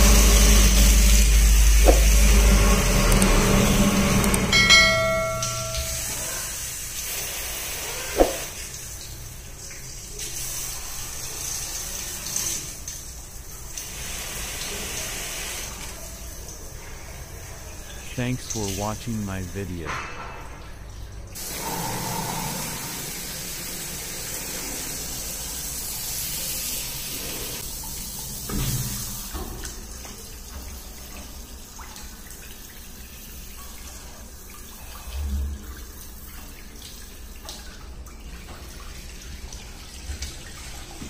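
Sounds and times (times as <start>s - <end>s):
shower water spraying: 0.0s - 4.0s.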